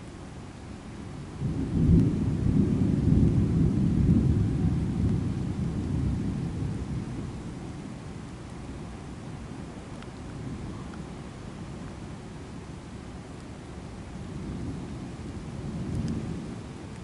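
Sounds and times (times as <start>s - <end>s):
steady rain: 0.0s - 17.0s
thunder rolling: 1.4s - 8.0s, 14.3s - 16.9s.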